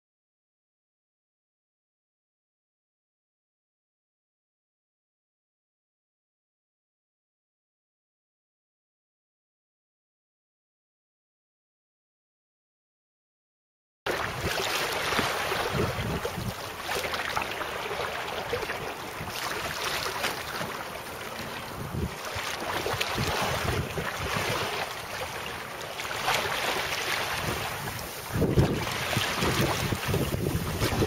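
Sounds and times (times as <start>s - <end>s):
fabric sail flapping: 14.1s - 17.6s, 18.4s - 25.3s, 26.0s - 31.0s
water splashing: 14.1s - 31.0s
wind buffeting microphone: 14.2s - 16.9s, 21.6s - 25.2s, 26.6s - 31.0s.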